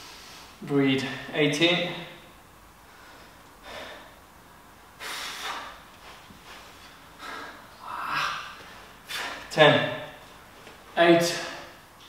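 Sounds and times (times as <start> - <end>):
man breathing hard: 2.9 - 4.2, 6.7 - 9.5.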